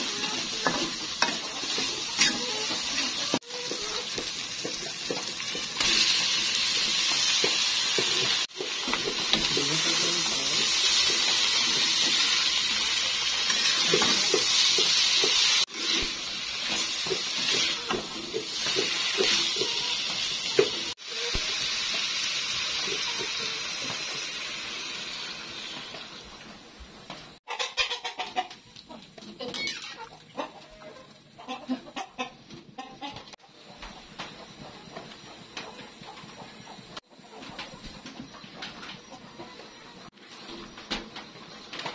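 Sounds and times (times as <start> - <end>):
food sizzling in a wok: 0.0 - 26.4.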